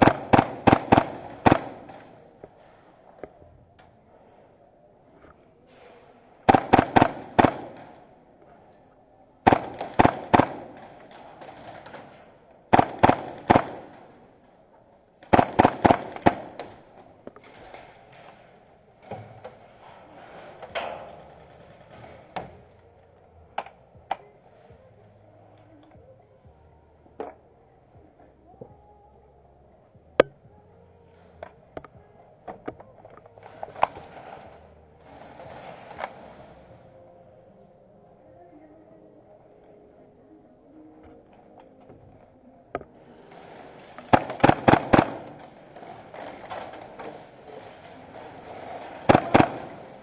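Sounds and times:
replica guns firing: 0.0s - 2.2s, 6.5s - 8.2s, 9.4s - 12.1s, 12.7s - 14.3s, 15.2s - 17.0s, 43.4s - 50.0s.

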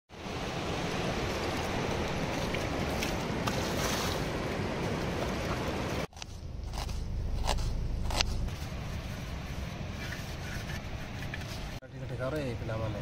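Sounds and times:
river water rushing: 0.1s - 6.1s.

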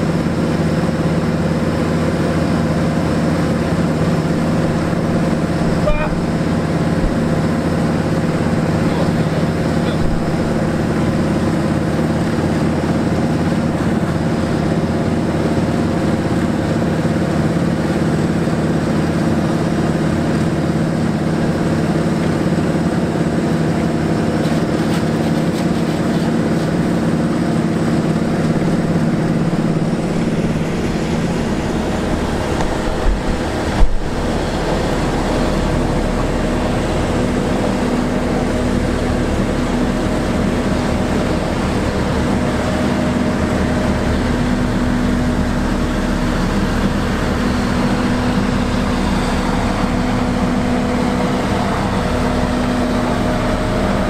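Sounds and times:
heavy diesel engines running: 0.0s - 54.0s
low thumps: 29.5s - 35.0s.

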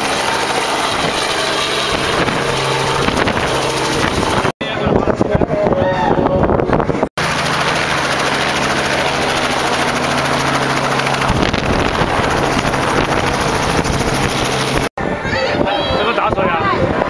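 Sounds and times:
low hum: 0.0s - 4.6s, 6.4s - 14.9s
helicopter rotor beating: 0.0s - 5.2s, 6.4s - 15.0s.

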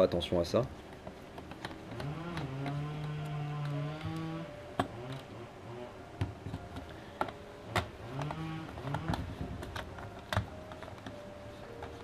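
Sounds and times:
screwdriver clicking on plastic: 0.9s - 5.3s, 6.2s - 11.2s.

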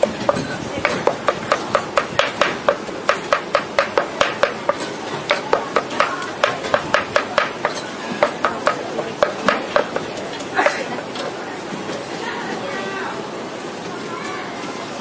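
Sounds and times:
cleaver chopping in a metal pan: 0.0s - 10.1s.

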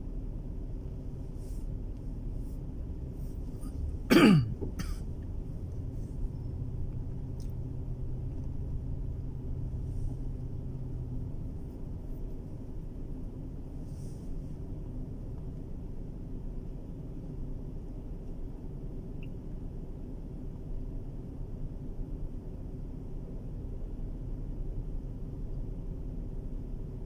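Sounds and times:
car cabin rumble: 0.0s - 27.0s
person coughing: 4.1s - 5.0s.

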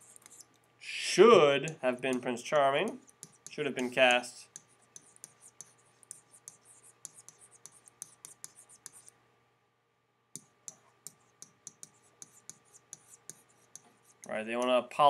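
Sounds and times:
stylus tapping on tablet: 10.4s - 13.9s.

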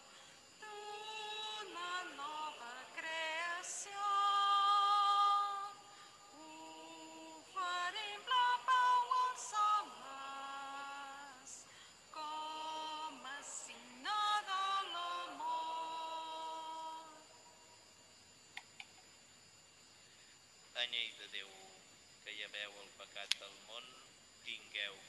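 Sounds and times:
woman singing a hymn: 0.0s - 17.4s.

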